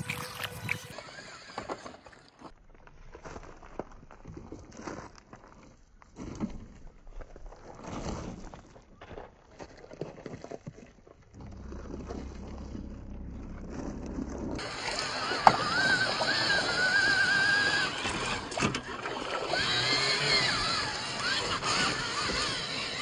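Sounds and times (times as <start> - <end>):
electric motor whining: 0.0 - 2.2, 11.4 - 23.0
crunching on loose gravel: 2.4 - 19.0.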